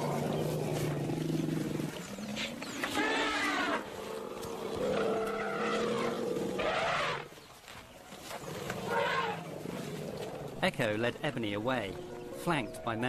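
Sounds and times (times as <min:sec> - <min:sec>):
elephants calling: 0:00.0 - 0:07.3.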